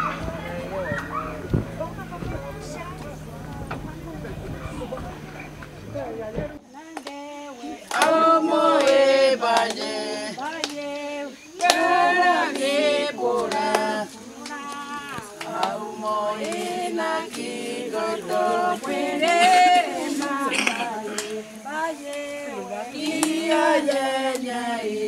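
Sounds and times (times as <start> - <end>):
choir singing in harmony: 5.0 - 25.0.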